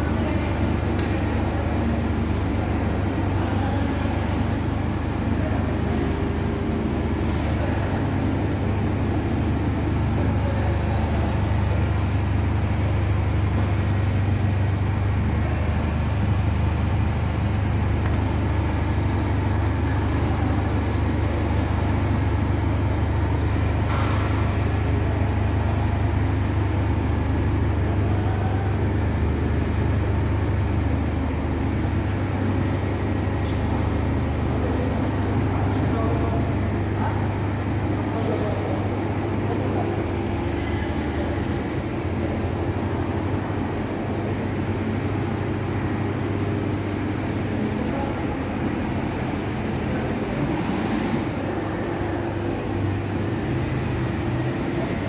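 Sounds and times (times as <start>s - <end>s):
low machine hum: 0.0s - 55.0s.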